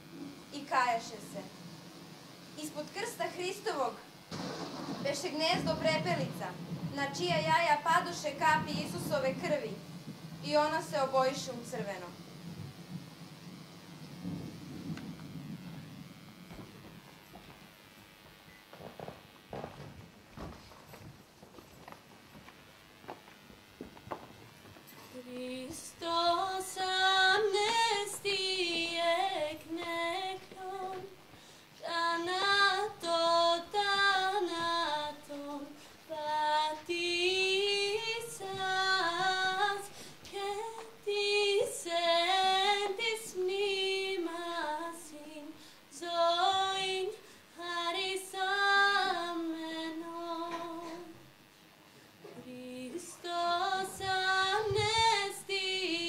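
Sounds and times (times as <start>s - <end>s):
woman singing unaccompanied: 5.1s - 12.3s, 25.1s - 51.3s, 52.4s - 56.0s.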